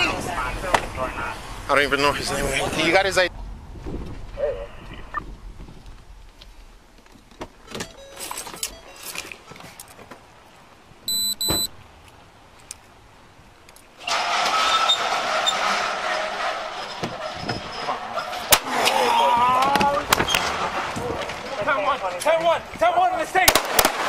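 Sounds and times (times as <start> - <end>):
double electronic beep: 7.8 - 9.2, 11.1 - 11.8.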